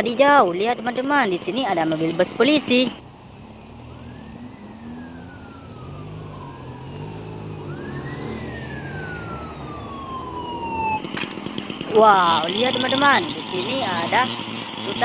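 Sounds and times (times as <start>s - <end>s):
vehicle engines rumbling: 0.0s - 15.0s
police siren wailing: 2.5s - 14.4s.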